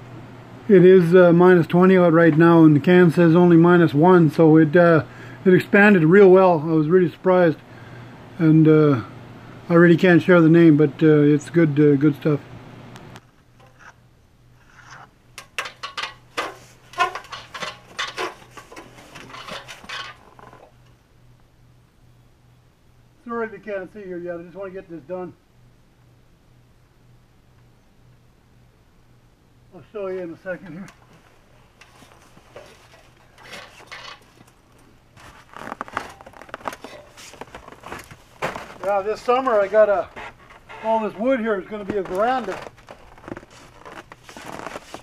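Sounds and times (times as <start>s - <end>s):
handling clicks and scrapes: 13.2s - 14.0s, 14.6s - 20.9s, 30.8s - 45.0s
metal ladder clanking: 15.4s - 20.7s, 31.8s - 34.6s, 35.2s - 41.2s.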